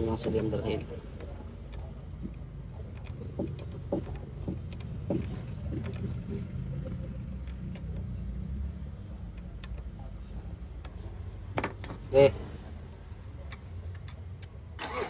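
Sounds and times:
short engine knocks: 3.2s - 6.5s.

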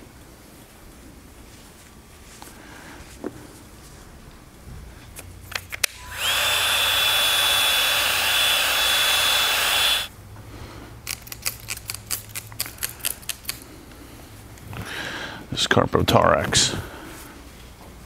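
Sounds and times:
heat gun fan whining: 5.4s - 10.1s.

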